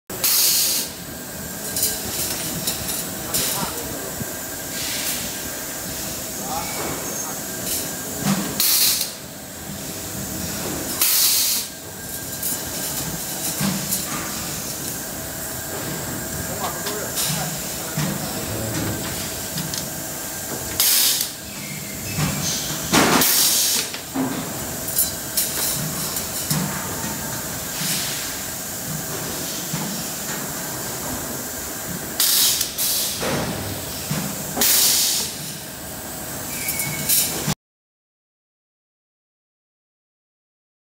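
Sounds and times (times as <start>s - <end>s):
workshop machine hum: 0.1s - 37.6s
pneumatic air hissing bursts: 0.2s - 1.0s, 4.7s - 5.4s, 8.6s - 9.2s, 11.0s - 11.7s, 22.4s - 23.9s, 32.2s - 33.2s, 34.6s - 35.5s.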